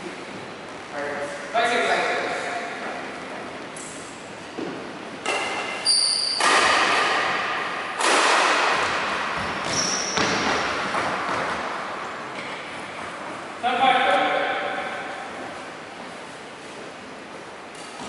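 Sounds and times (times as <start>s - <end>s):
racket striking shuttlecock: 4.6s - 11.6s
shoe squeaks: 5.7s - 6.5s, 9.6s - 10.7s
footfalls on wooden court: 8.2s - 13.3s.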